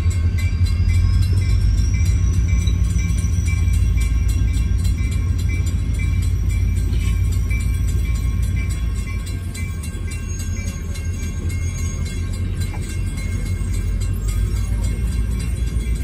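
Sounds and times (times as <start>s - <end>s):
train coaches rumbling past: 0.0s - 16.0s
wheels clattering on rails: 0.0s - 16.0s.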